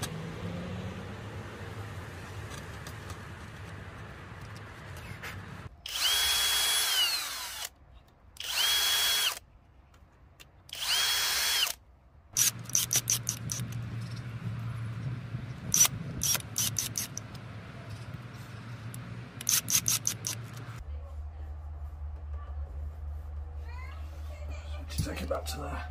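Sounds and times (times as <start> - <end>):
cordless drill whirring: 5.8 - 7.7, 8.4 - 9.4, 10.7 - 11.8, 12.4 - 13.8
sharp clicks of screws driving: 10.4 - 11.8, 12.4 - 14.2, 15.7 - 18.2, 18.9 - 20.8.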